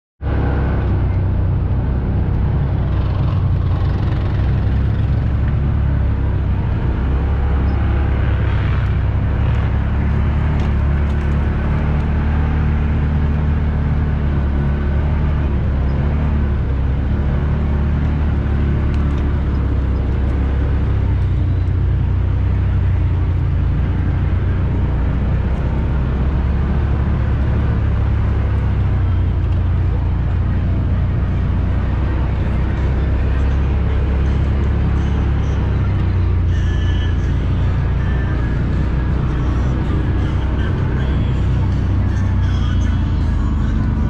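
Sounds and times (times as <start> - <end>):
off-road vehicle engine droning: 0.2 - 44.0.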